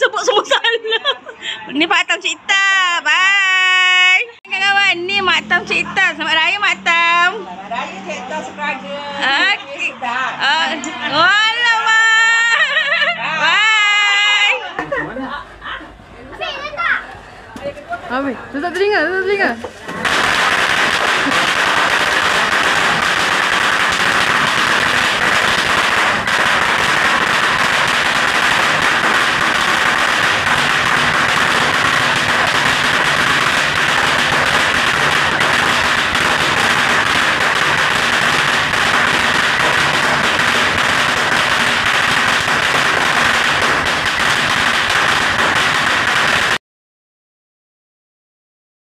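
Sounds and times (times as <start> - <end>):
firecrackers popping and crackling: 4.4 - 7.3, 19.2 - 46.6.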